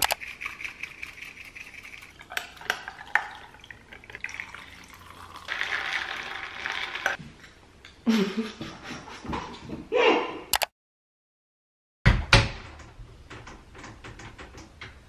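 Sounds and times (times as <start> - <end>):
ice clinking: 0.1 - 7.2
liquid pouring over ice: 0.2 - 7.2.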